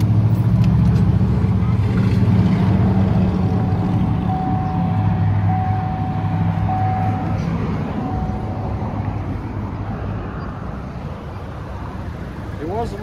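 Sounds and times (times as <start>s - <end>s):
car engine idling: 2.8s - 9.7s.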